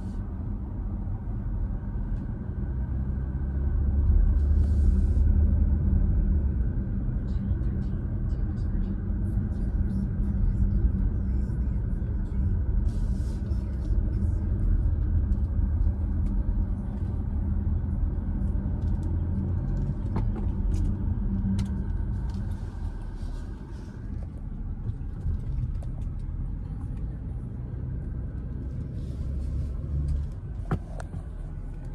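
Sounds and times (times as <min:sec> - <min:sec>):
car engine and road noise rumble: 0:00.0 - 0:31.9.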